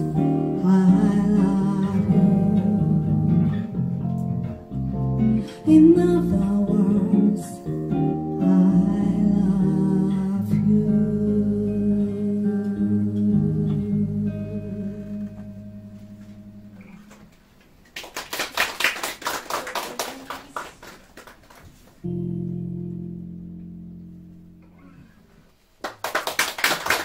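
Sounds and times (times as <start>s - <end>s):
audience clapping: 17.8s - 22.0s, 25.8s - 27.0s.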